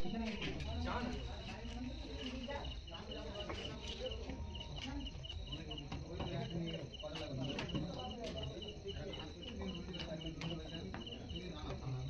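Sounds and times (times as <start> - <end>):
crickets chirping: 0.0 - 12.0
low murmuring voices: 0.0 - 12.0.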